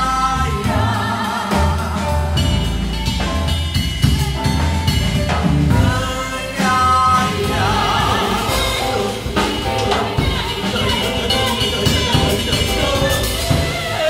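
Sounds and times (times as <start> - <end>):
double bass: 0.0 - 14.0
drum kit: 0.0 - 14.0
person singing: 5.7 - 14.0.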